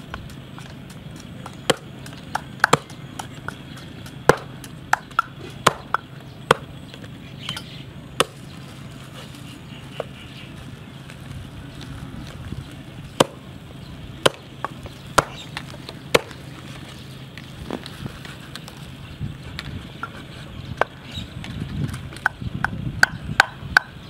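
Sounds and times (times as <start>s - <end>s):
pestle pounding in mortar: 0.1s - 6.7s, 22.2s - 24.0s.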